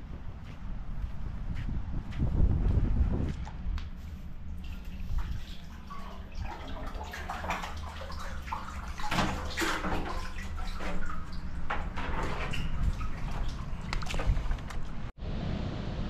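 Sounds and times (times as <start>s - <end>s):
water splashing and sloshing: 3.2s - 15.2s.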